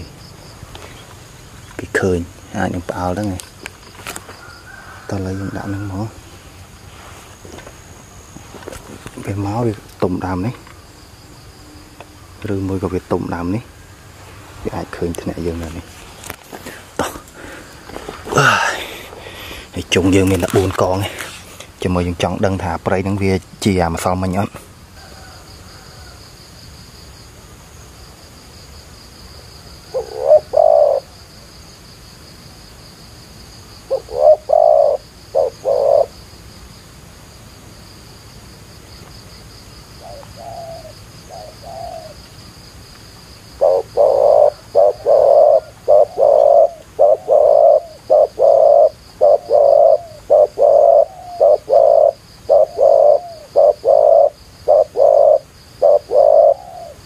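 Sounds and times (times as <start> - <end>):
doves cooing: 4.1 - 6.7, 14.7 - 21.7, 29.8 - 31.2, 33.9 - 36.2, 40.0 - 42.2, 43.5 - 57.0.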